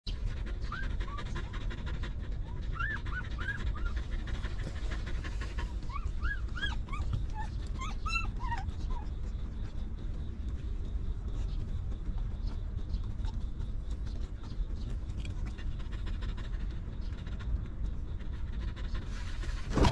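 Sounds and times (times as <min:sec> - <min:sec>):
dog panting: 0:00.1 - 0:19.9
puppies squeaking and whining: 0:00.3 - 0:01.7, 0:02.4 - 0:09.5.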